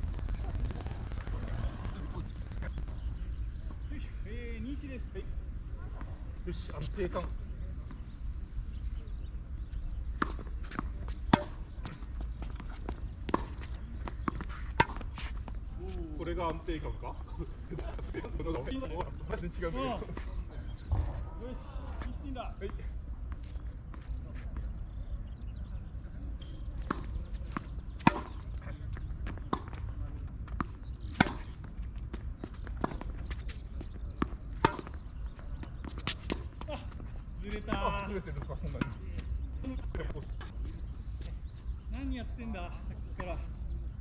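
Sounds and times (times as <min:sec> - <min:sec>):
steady low rumble: 0:00.0 - 0:04.3
tennis ball struck by racket: 0:10.2 - 0:11.6, 0:28.0 - 0:28.4
tennis ball bouncing on court: 0:10.2 - 0:15.6, 0:26.8 - 0:38.0.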